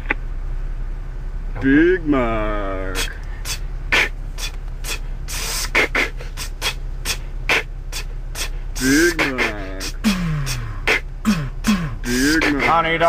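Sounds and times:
low steady hum: 0:00.0 - 0:13.0
beatboxing hissing strokes: 0:03.0 - 0:12.8.

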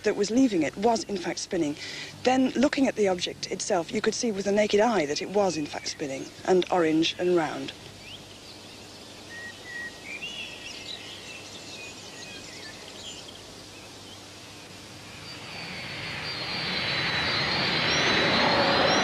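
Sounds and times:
birds chirping faintly: 0:00.0 - 0:19.0
aircraft engine whine: 0:14.4 - 0:19.0.

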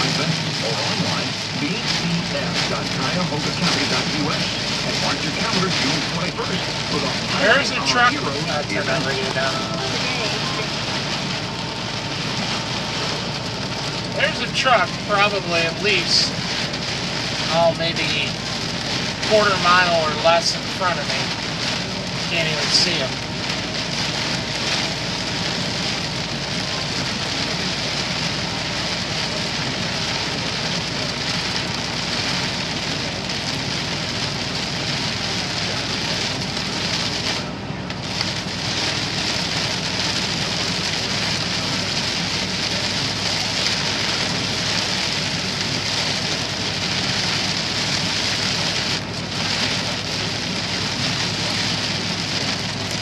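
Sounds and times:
heavy rain on windshield: 0:00.0 - 0:53.0
low steady hum: 0:00.0 - 0:53.0.

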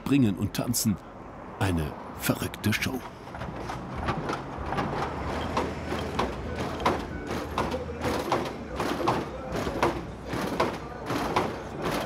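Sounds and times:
low hum of car engines: 0:00.0 - 0:12.0
hydraulic suspension clanks and knocks: 0:03.0 - 0:12.0.

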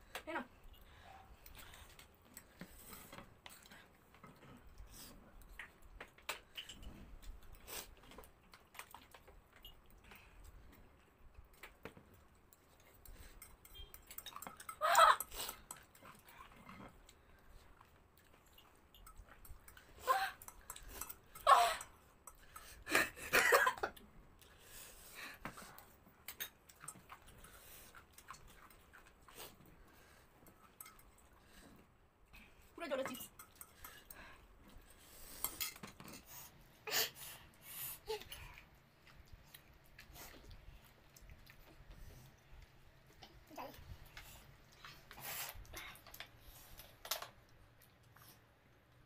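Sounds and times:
chewing: 0:00.6 - 0:23.0, 0:23.8 - 0:36.6, 0:38.2 - 0:49.0
cutlery clinking on glass plates: 0:13.3 - 0:15.9.

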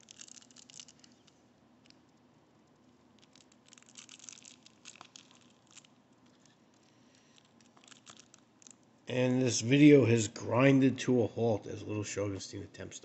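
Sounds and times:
plastic wrap crinkling: 0:00.0 - 0:08.9.

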